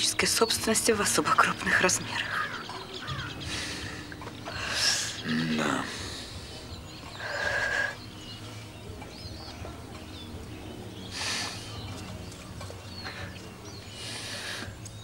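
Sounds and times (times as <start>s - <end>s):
breathy rush: 3.1s - 8.7s.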